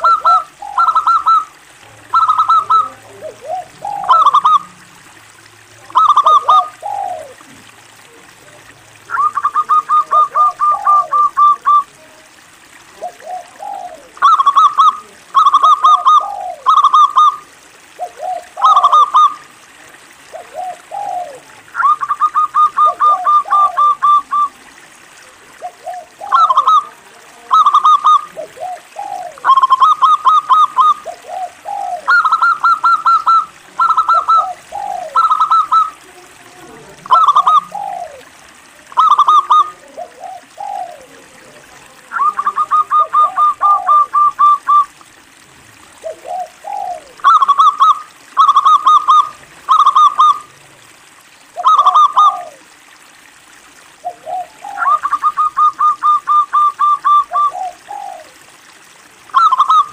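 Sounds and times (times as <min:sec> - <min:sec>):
dove cooing: 0:00.0 - 0:50.6, 0:51.4 - 0:53.0, 0:53.8 - 0:58.7, 0:59.3 - 0:59.9.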